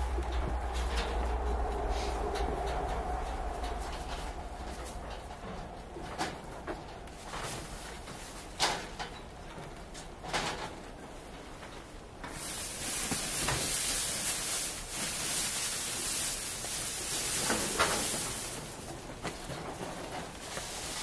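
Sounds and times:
dry hay rustling: 7.1s - 9.0s, 12.2s - 21.0s.

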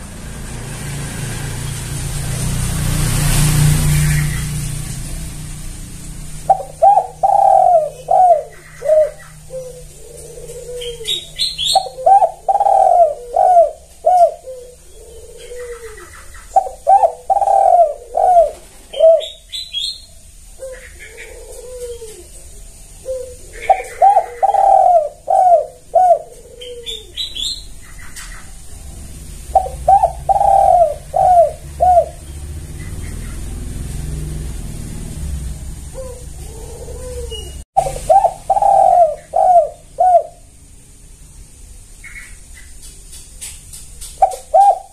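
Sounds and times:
dove cooing: 6.4s - 19.9s, 20.5s - 34.2s, 35.9s - 40.6s, 44.2s - 44.9s.

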